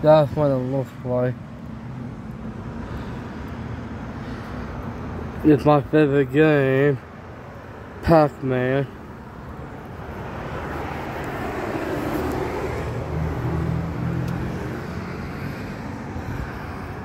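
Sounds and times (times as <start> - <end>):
motor vehicle passing by: 9.8 - 17.0.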